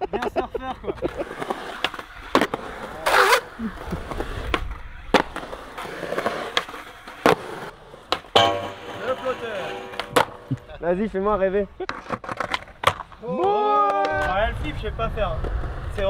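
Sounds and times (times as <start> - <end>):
skateboard wheels rolling on concrete: 0.0 - 16.0
skateboard grinding scrape: 1.0 - 10.7
skateboard clacking on surface: 8.1 - 10.7, 11.8 - 13.2.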